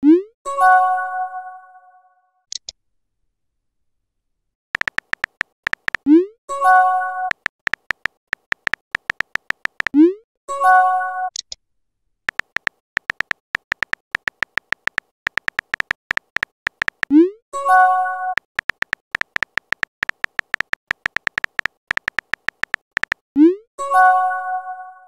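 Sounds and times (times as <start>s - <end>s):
keyboard tap clicks: 4.8s - 6.1s, 7.3s - 10.0s, 12.3s - 17.1s, 18.4s - 23.2s.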